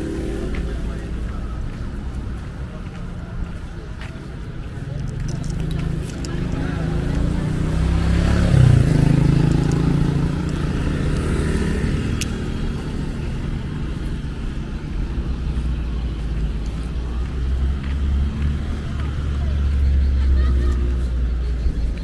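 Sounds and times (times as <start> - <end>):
low traffic rumble: 0.0 - 22.0
motorcycle riding by: 5.7 - 14.2.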